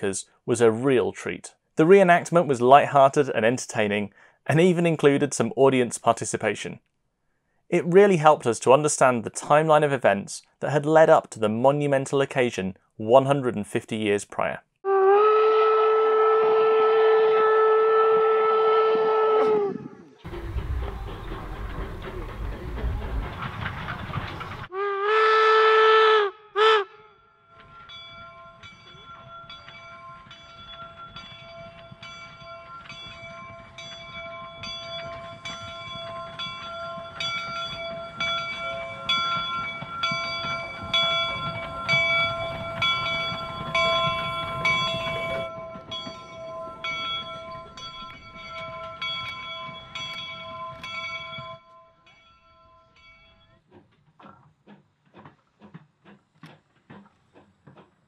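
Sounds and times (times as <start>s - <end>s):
steam locomotive whistle: 14.8s - 21.7s, 24.7s - 27.2s, 38.7s - 47.7s
locomotive bell ringing: 20.2s - 24.7s, 27.2s - 54.0s
low rumble of moving engine: 20.3s - 24.7s.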